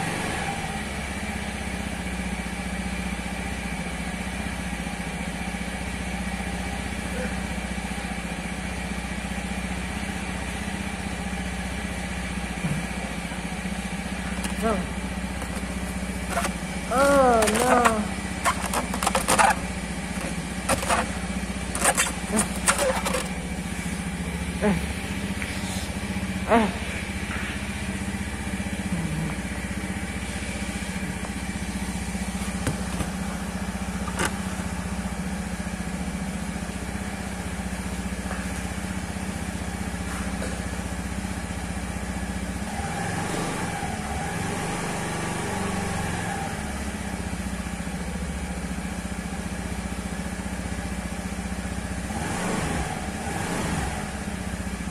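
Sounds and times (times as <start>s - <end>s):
scooter engine idling: 0.0s - 42.9s, 43.8s - 52.2s, 53.9s - 54.9s.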